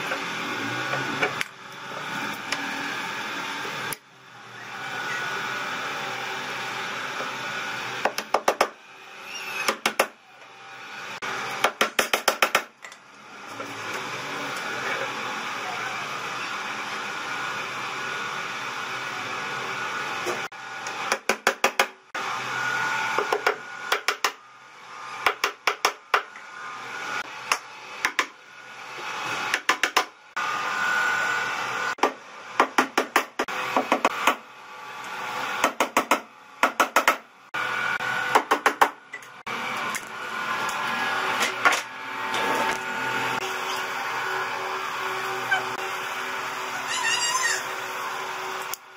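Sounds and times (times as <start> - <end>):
hammer tapping nails: 8.0 - 8.8, 9.7 - 10.2, 11.6 - 12.7, 21.1 - 22.0, 23.2 - 24.4, 25.2 - 26.3, 29.5 - 30.1, 35.6 - 37.2.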